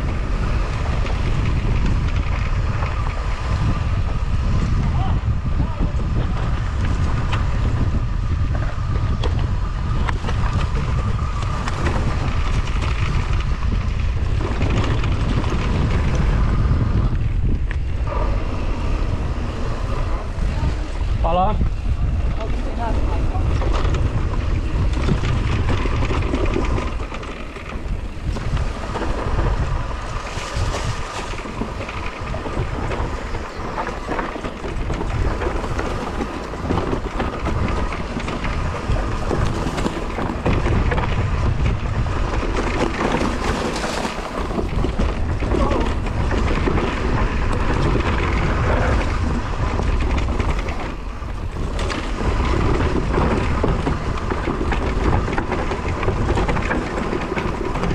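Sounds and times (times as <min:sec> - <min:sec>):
tyres and bike rattling: 0:00.0 - 0:57.9
wind buffeting microphone: 0:00.0 - 0:57.9.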